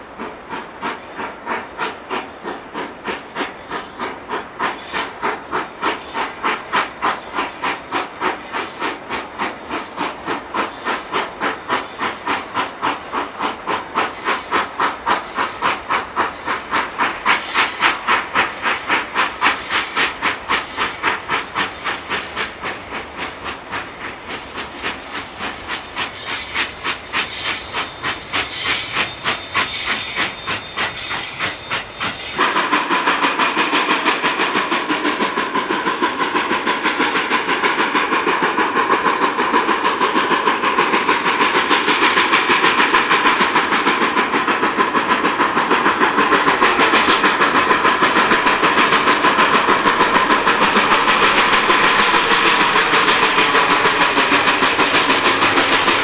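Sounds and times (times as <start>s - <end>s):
steam hissing: 0.0s - 56.0s
steam locomotive chuffing: 0.0s - 56.0s.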